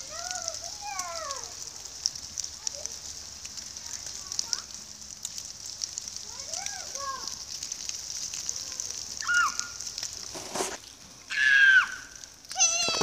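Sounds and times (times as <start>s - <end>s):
children's high-pitched cries: 0.0s - 1.7s, 8.4s - 9.9s, 11.3s - 13.0s
steady crackling hiss: 0.0s - 13.0s
child squealing: 9.2s - 9.8s, 11.3s - 13.0s.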